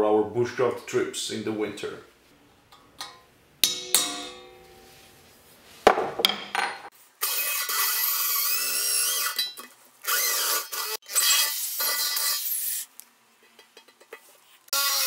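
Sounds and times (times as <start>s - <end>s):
drill whining into metal: 7.2s - 12.8s, 14.8s - 15.0s.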